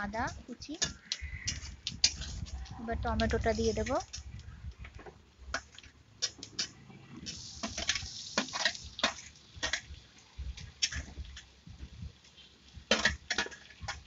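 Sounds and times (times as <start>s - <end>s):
tomato sizzling in hot oil: 0.0s - 14.0s
metal spatula scraping bowl: 0.7s - 4.2s.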